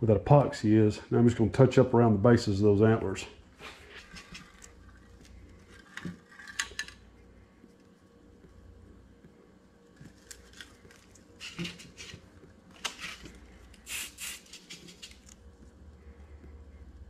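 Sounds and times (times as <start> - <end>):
low steady hum: 0.0 - 17.0
aerosol can hisses: 13.8 - 14.7.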